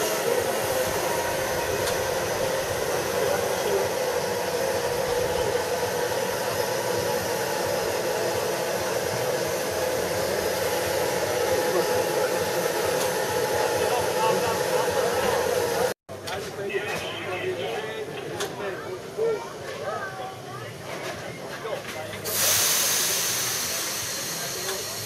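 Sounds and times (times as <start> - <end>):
steam locomotive hissing: 0.0 - 16.0, 22.2 - 25.0.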